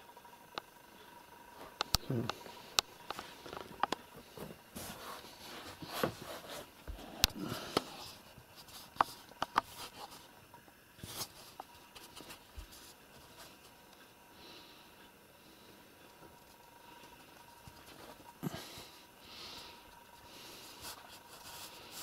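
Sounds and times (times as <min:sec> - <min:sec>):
kittens scratching and rustling: 0:01.8 - 0:10.4, 0:11.0 - 0:14.0, 0:16.1 - 0:22.0.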